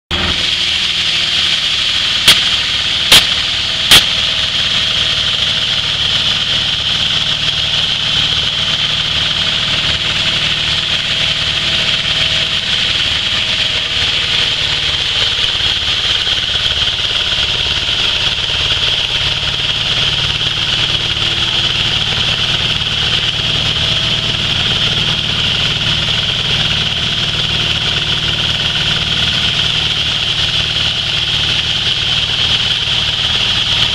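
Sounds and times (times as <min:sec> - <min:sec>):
flour mill engine hum: 0:00.1 - 0:33.9
sharp clicks: 0:03.1 - 0:04.2.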